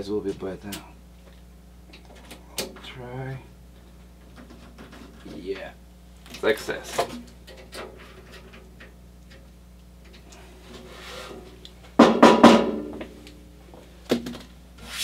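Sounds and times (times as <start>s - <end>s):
sharp knock: 12.0s - 13.0s.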